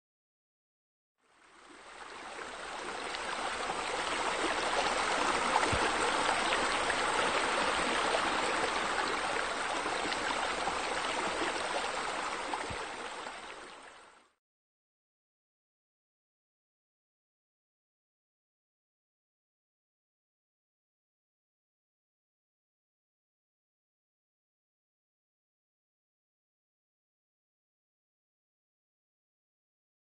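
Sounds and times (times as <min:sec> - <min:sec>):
water trickling and splashing: 0:01.3 - 0:14.2.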